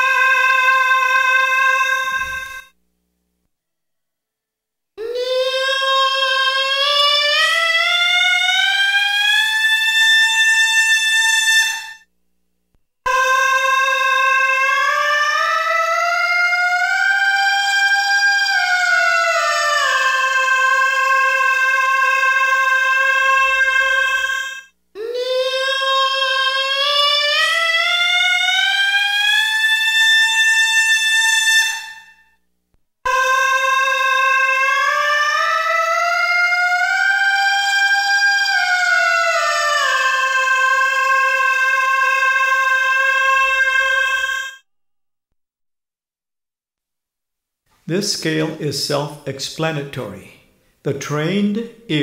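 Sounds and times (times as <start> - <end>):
person singing a held vowel: 0.0 - 2.8, 5.0 - 12.0, 13.0 - 32.4, 33.1 - 44.7.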